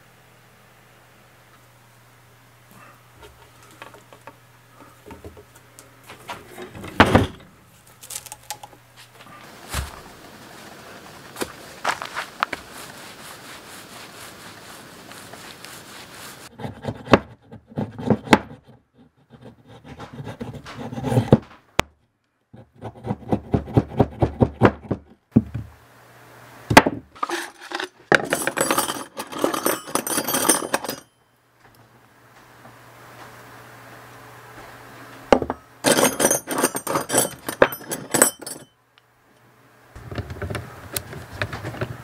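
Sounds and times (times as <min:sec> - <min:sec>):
blade scraping wood: 0:15.1 - 0:21.5, 0:22.6 - 0:24.1.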